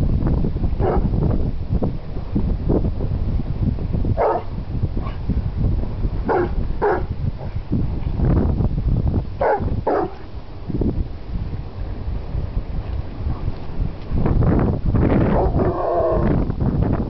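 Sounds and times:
dog barking: 0.8 - 1.1, 4.2 - 5.2, 6.3 - 7.1, 9.4 - 10.2.

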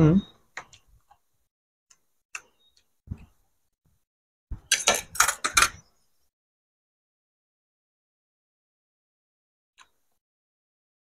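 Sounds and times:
cutlery clicking on plates: 4.7 - 5.8.

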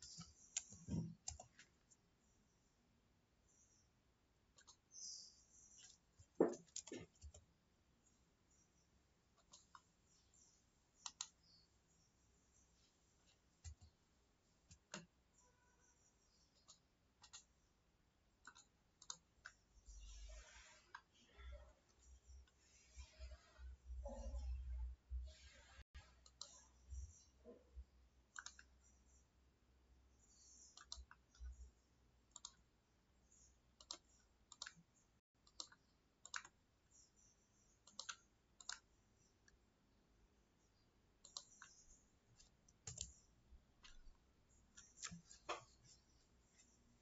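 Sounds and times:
computer mouse clicks: 0.0 - 2.0, 4.5 - 7.5, 9.3 - 11.6, 14.6 - 15.1, 16.5 - 17.6, 18.4 - 21.1, 26.0 - 27.3, 28.3 - 29.2, 30.2 - 31.7, 32.3 - 32.7, 33.3 - 39.6, 41.2 - 46.8.

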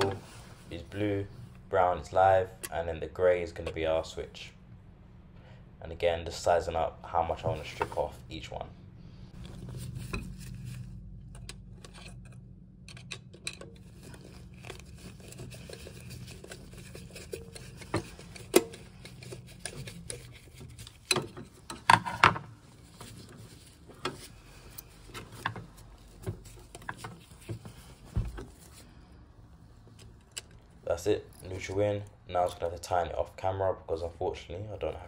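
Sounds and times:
low hum: 0.0 - 32.3
clicks and scrapes of wiring: 9.4 - 28.9, 29.8 - 31.8.

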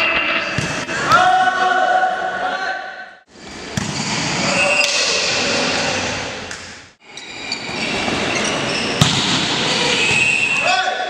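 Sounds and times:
volleyball being hit: 3.7 - 5.2, 9.0 - 9.5.

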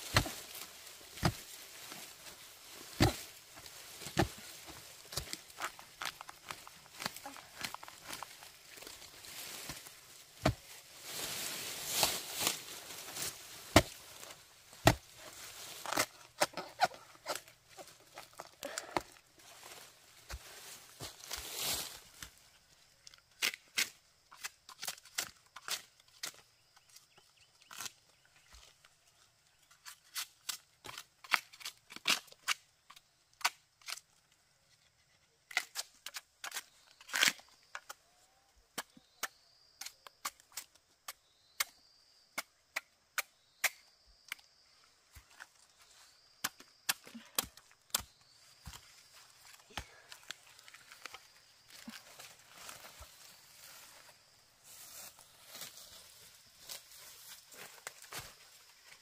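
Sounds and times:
sharp snaps and cracks: 29.8 - 34.2, 35.5 - 38.0.

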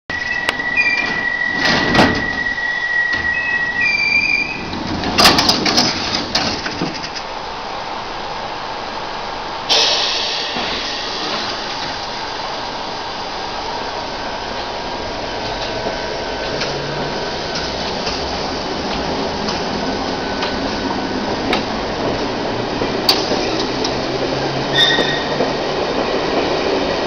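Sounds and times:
train running: 0.1 - 27.0
sliding doors banging shut: 0.8 - 2.5, 3.1 - 7.2
hiss of air: 9.7 - 13.7.

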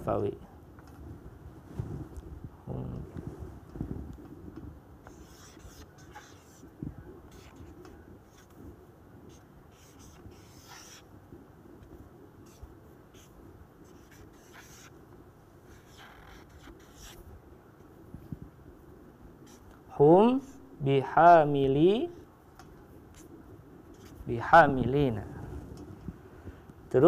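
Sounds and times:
marker squeaking on whiteboard: 5.0 - 8.6, 9.2 - 11.1, 12.4 - 15.0, 15.7 - 17.2, 19.4 - 20.6, 23.1 - 24.3.

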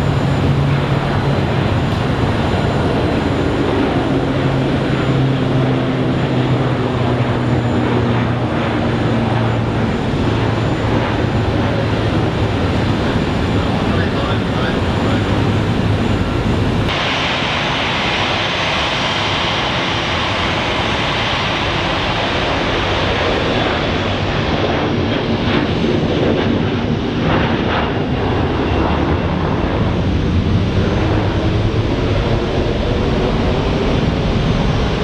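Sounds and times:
jet engines roaring: 0.0 - 35.0.

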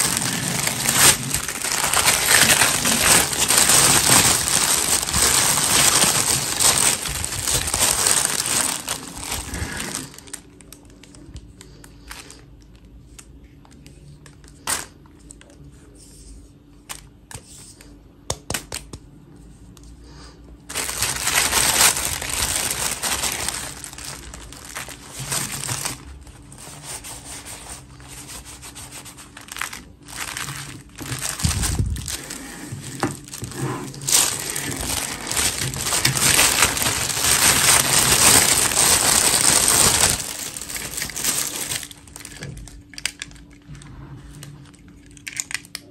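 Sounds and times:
plastic bag crinkling: 0.0 - 12.6, 20.7 - 43.6.

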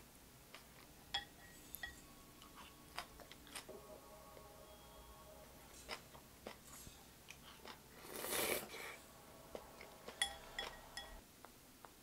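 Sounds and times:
chewing: 2.4 - 3.7, 5.7 - 11.2
slurping noodles: 7.5 - 9.0.

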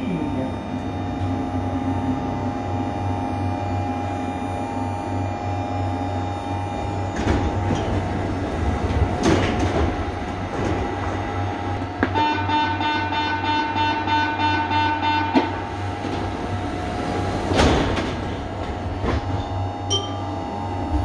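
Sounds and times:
electrical whine: 0.0 - 9.1.

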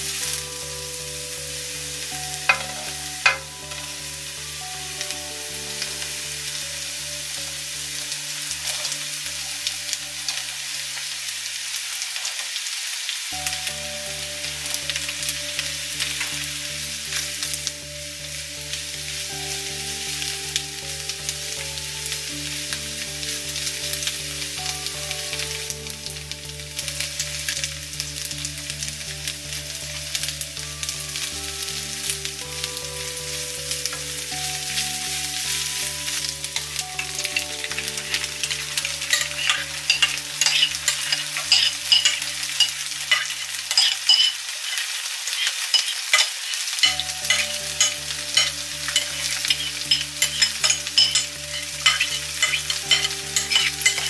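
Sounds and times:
sauce crackling and popping: 0.0 - 54.0
tofu sizzling in a pan: 0.0 - 54.0
spatula stirring in a pan: 2.5 - 3.7, 34.0 - 54.0.

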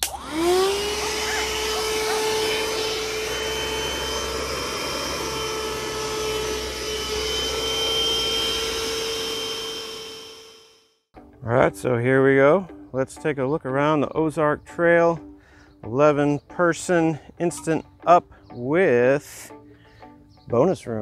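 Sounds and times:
vacuum cleaner whining: 0.0 - 10.9.

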